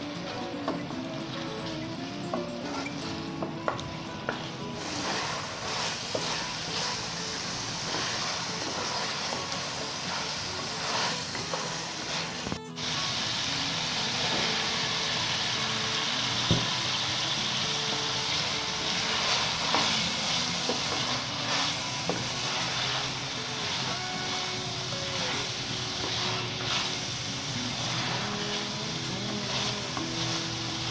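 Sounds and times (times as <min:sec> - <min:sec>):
meat sizzling in a pan: 0:04.2 - 0:30.9
wooden spoon scraping a pan: 0:04.3 - 0:12.6, 0:19.0 - 0:30.9
sharp knock: 0:16.5 - 0:16.7.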